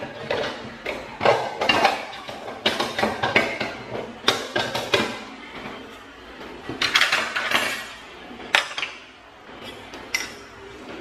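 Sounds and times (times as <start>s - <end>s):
utensils clinking in a drawer: 6.7s - 9.0s, 9.6s - 10.6s.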